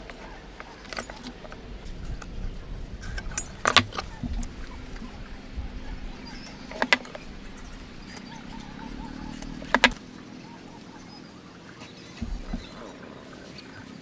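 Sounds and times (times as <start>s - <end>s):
low steady hum: 0.0s - 14.0s
metal-on-wood clicks: 3.0s - 10.0s.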